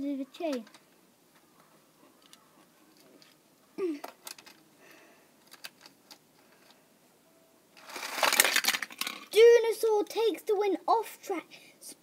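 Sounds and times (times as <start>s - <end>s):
toy cars clacking on plastic ramp: 7.8s - 9.4s.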